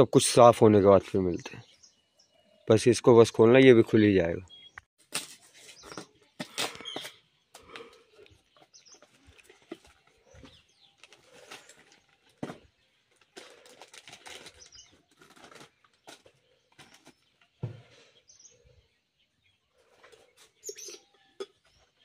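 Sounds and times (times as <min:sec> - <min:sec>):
birds calling: 0:05.6 - 0:22.0.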